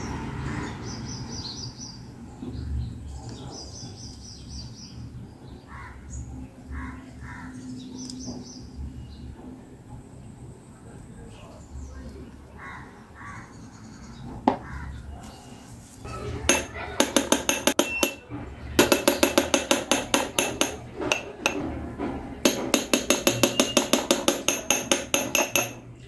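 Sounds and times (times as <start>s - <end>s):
spoon clinking on glass: 16.5s - 21.6s, 22.5s - 25.8s.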